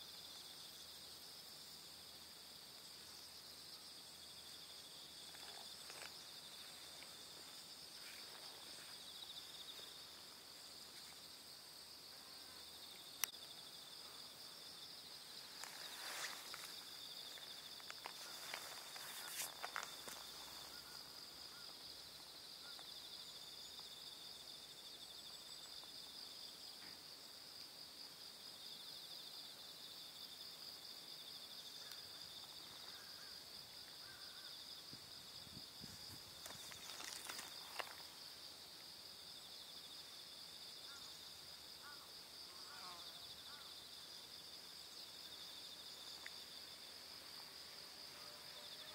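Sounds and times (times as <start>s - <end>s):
insects trilling: 0.0s - 48.9s.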